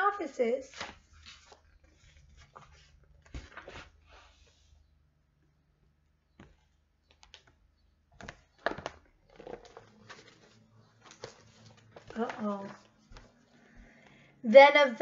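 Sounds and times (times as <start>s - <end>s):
paper rustling: 0.7s - 4.7s, 8.2s - 13.5s.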